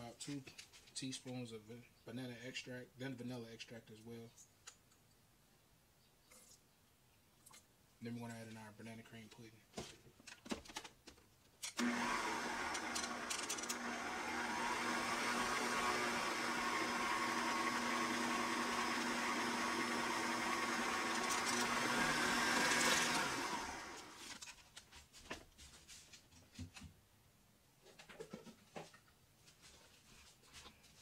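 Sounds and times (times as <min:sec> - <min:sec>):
stand mixer motor hum: 0:11.8 - 0:24.3.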